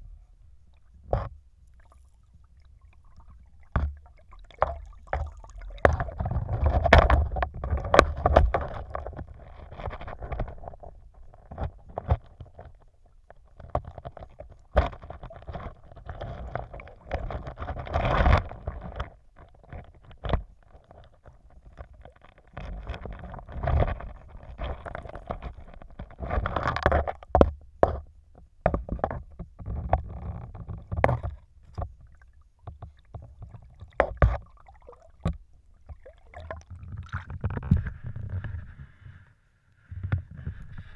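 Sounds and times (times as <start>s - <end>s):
muffled underwater stream rushing: 0.0s - 9.4s, 31.9s - 39.0s.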